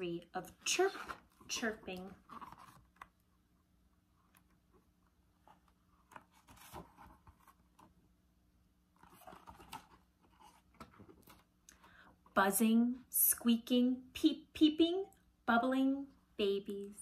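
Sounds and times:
book handling taps and rustles: 0:05.4 - 0:08.0.

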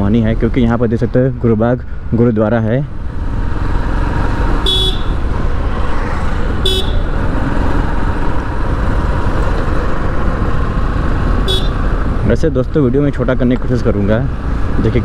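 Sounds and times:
short horn beeps: 0:04.6 - 0:05.2, 0:06.6 - 0:07.1.

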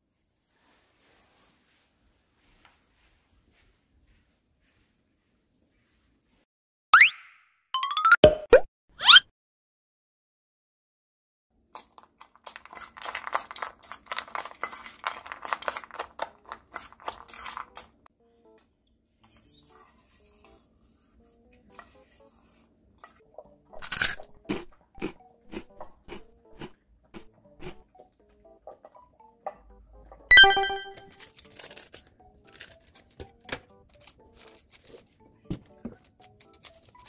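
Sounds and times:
spoon stirring in metal bowl: 0:12.0 - 0:17.9
dog chewing food: 0:24.2 - 0:27.8.

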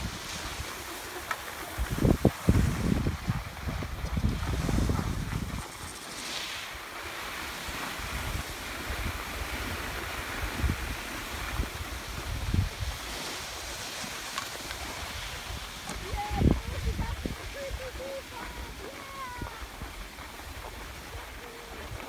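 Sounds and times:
wind buffeting microphone: 0:00.0 - 0:06.0, 0:07.0 - 0:22.0
skis scraping over snow: 0:00.0 - 0:22.0.

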